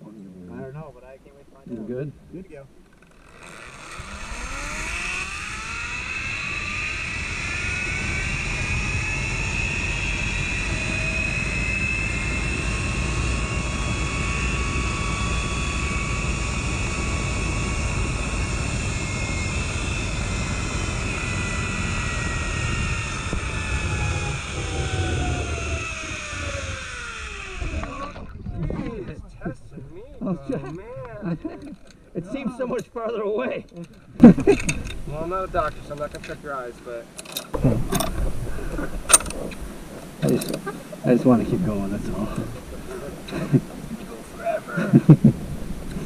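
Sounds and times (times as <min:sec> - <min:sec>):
pulleys whining on steel cable: 0:02.9 - 0:28.4
wind rushing over microphone: 0:04.6 - 0:30.0, 0:37.6 - 0:46.0.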